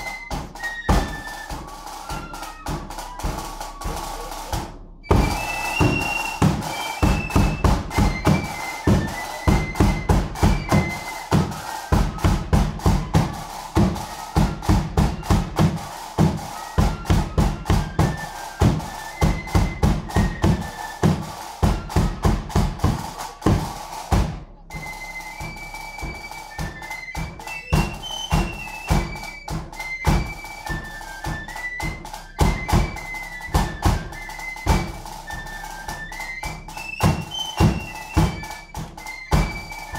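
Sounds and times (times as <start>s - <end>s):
bass drum beating: 0.0s - 24.8s
flute melody: 0.0s - 39.9s.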